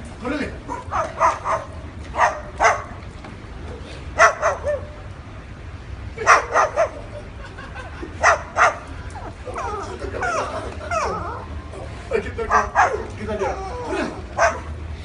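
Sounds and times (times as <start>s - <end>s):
cockatoo mimicking dog barks: 0.6s - 3.0s, 4.2s - 5.0s, 6.2s - 7.2s, 12.5s - 14.8s.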